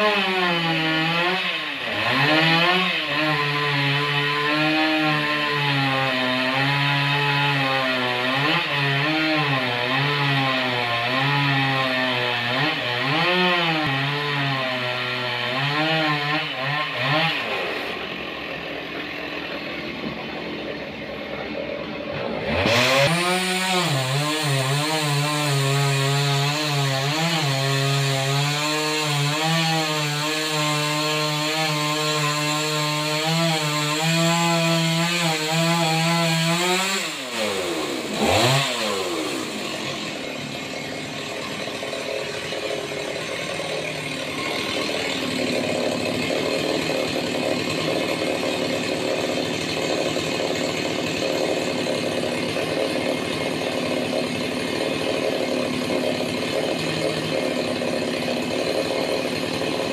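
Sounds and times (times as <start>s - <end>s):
saw engine running: 17.0s - 27.3s, 37.1s - 59.9s.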